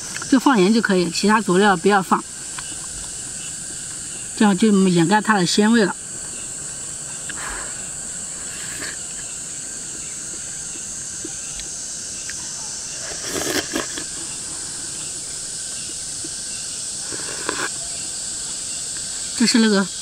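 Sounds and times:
insects droning: 0:00.0 - 0:20.0
slurping broth: 0:08.4 - 0:09.2, 0:13.0 - 0:15.2, 0:17.0 - 0:17.8.

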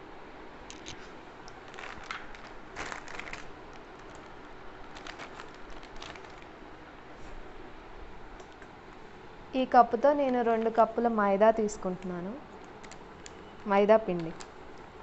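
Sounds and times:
plastic packet crinkling: 0:00.8 - 0:06.6, 0:11.8 - 0:13.5, 0:14.1 - 0:14.6.

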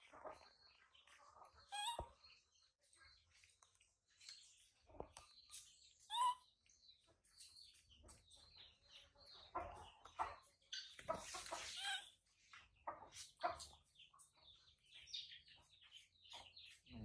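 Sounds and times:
small animal chirping: 0:01.6 - 0:02.2, 0:06.0 - 0:06.4.

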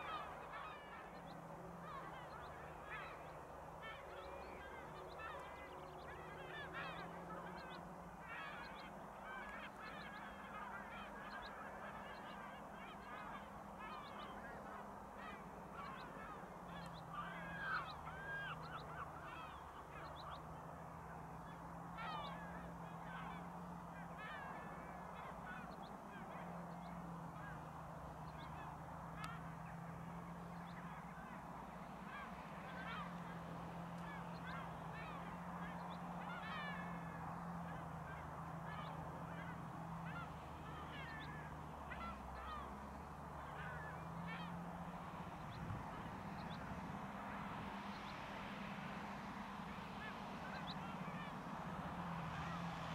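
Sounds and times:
gulls calling: 0:00.0 - 0:52.9
tractor engine drone: 0:00.0 - 0:52.9.

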